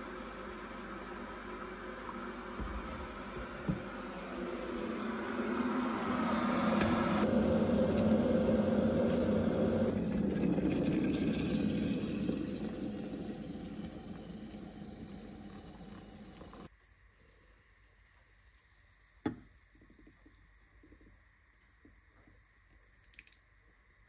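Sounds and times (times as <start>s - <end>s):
appliance rumbling hiss: 0.0s - 19.7s
hot water pouring into a mug: 7.2s - 16.7s.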